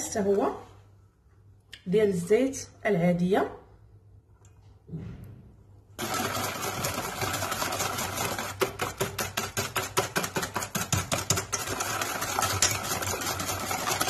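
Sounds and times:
whisk beating in a metal bowl: 0:06.0 - 0:14.0.

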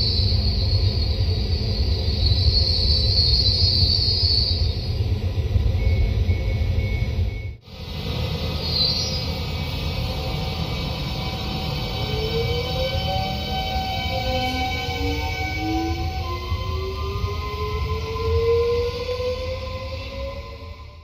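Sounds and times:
high squeal of wheels: 0:00.0 - 0:05.0, 0:08.6 - 0:09.6, 0:11.0 - 0:21.0
train low rumble: 0:00.0 - 0:21.0
short even beeps: 0:05.8 - 0:07.6.

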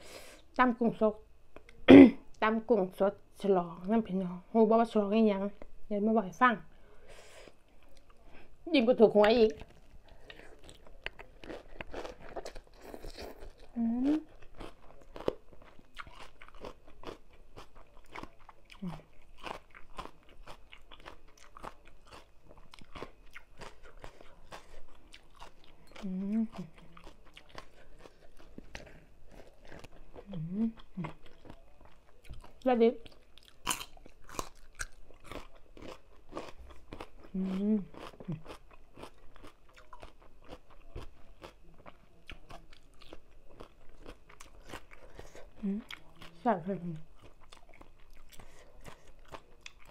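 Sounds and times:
chewing crisp salad: 0:09.3 - 0:49.9
person humming: 0:13.8 - 0:14.2, 0:26.0 - 0:26.7, 0:30.3 - 0:30.8, 0:37.4 - 0:38.4.

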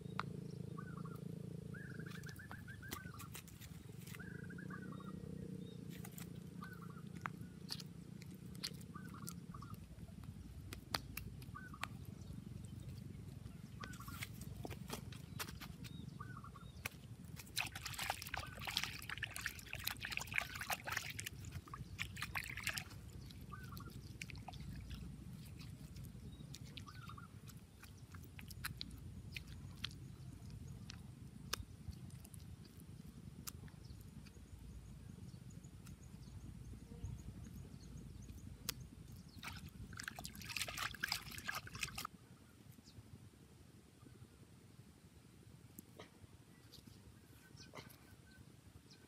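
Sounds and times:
wet mud squelching and slapping: 0:02.0 - 0:04.6, 0:05.8 - 0:34.6, 0:38.4 - 0:42.1.

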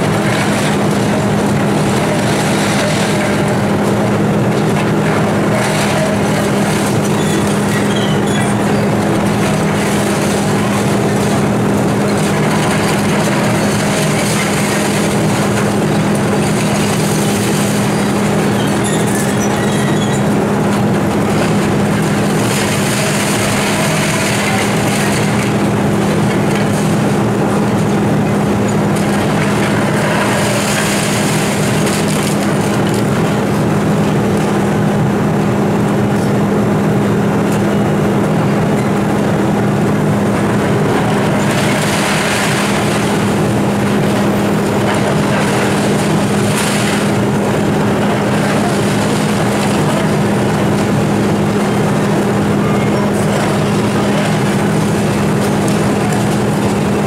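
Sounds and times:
excavator diesel engine running: 0:00.0 - 0:57.0
roof tiles crunching and clattering: 0:00.1 - 0:33.6.

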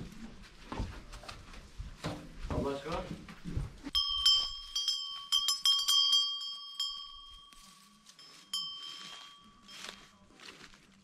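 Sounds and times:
livestock bell clanking: 0:03.9 - 0:10.0.

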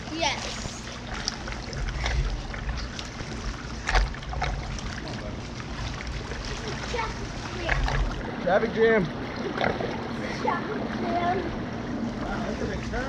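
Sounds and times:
pool water sloshing and splashing: 0:00.0 - 0:13.0
low rumble on microphone: 0:00.6 - 0:08.4.

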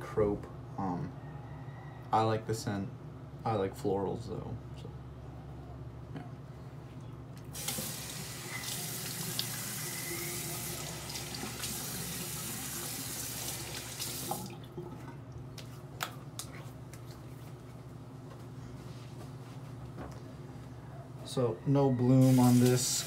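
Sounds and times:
tap water pouring: 0:07.5 - 0:15.1.

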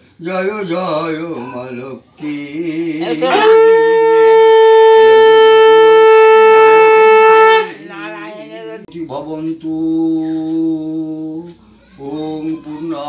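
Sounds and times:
voices chanting: 0:00.2 - 0:13.0
conch shell blown: 0:03.2 - 0:07.9.

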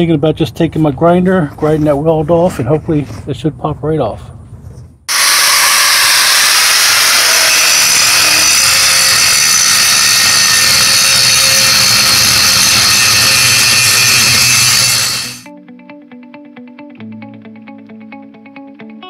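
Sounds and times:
angle grinder grinding steel: 0:05.1 - 0:15.5.

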